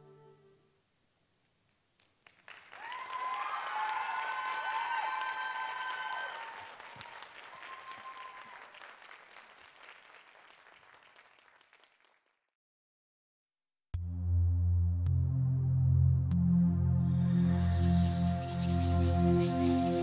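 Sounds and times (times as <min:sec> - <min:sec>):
audience applause: 0:02.2 - 0:12.3.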